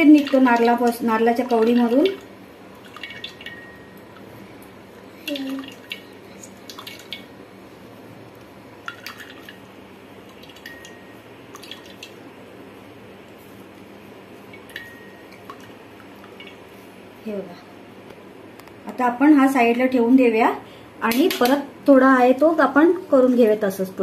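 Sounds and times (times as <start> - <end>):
coconut milk dripping into bowl: 1.5 - 4.3, 10.2 - 12.2.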